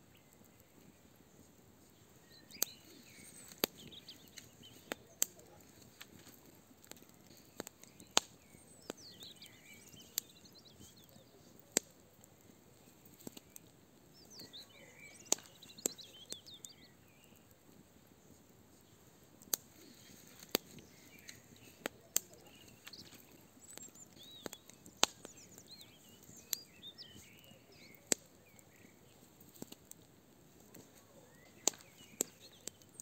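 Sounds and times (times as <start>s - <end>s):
fire crackling and popping: 0.0s - 33.0s
bird singing: 2.1s - 6.3s, 7.0s - 12.2s, 12.8s - 17.6s, 19.7s - 29.4s, 30.7s - 33.0s.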